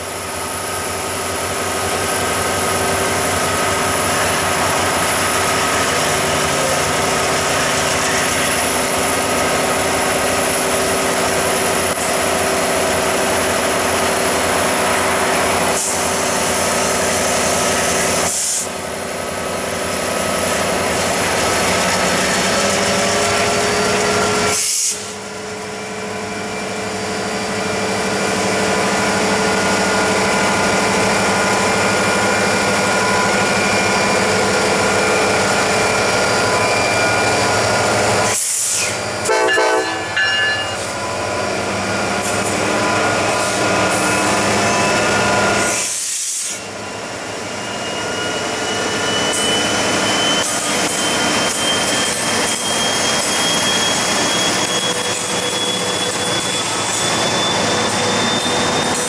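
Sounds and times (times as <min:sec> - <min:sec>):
diesel locomotive engine drone: 0:00.0 - 0:59.0.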